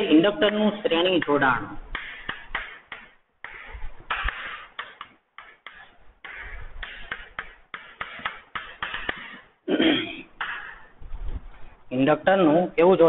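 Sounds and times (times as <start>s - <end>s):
person speaking: 0.0s - 1.9s.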